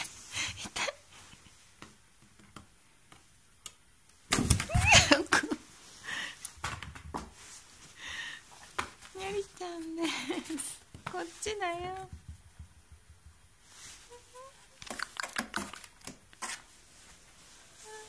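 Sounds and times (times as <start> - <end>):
soft rustling: 4.8 - 18.0.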